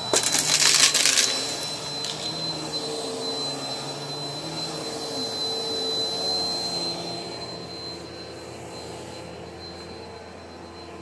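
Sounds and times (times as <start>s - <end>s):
vacuum cleaner motor drone: 0.0s - 11.0s.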